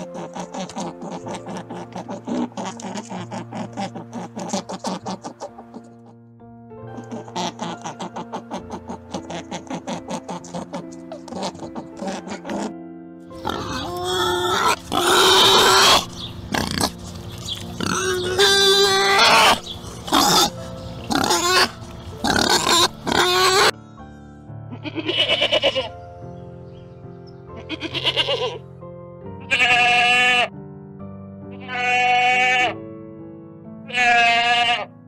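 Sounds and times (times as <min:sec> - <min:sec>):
wild boar grunting: 0:00.0 - 0:06.1, 0:06.9 - 0:23.7
background music: 0:00.0 - 0:35.0
goats bleating: 0:24.8 - 0:25.9, 0:27.6 - 0:28.6, 0:29.5 - 0:30.5, 0:31.6 - 0:32.8, 0:33.9 - 0:34.9.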